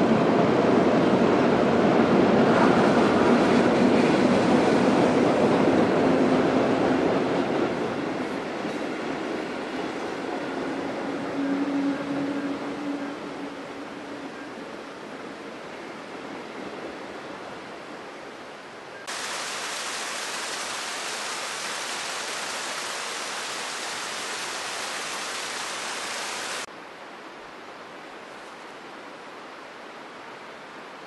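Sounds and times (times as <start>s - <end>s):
quiet steady water rushing: 5.5s - 31.0s
small waterfall splashing on rock: 19.1s - 26.7s.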